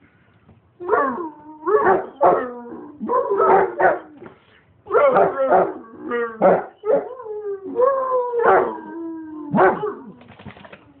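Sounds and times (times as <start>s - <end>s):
dog howling and baying: 0.8s - 4.2s, 4.9s - 10.2s.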